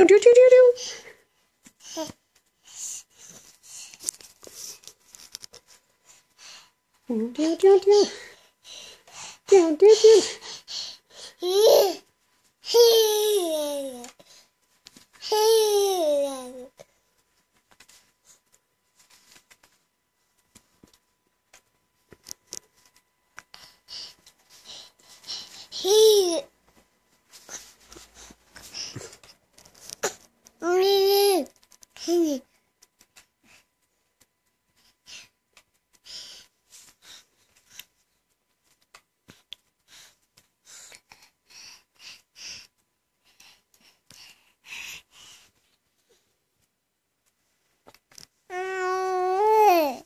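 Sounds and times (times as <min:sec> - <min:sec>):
toddler voice: 0:12.7 - 0:14.2, 0:15.2 - 0:16.8, 0:25.8 - 0:26.5, 0:30.6 - 0:32.5, 0:48.5 - 0:50.0
person breathing and sniffing: 0:23.4 - 0:26.1, 0:34.7 - 0:37.9, 0:39.2 - 0:46.3.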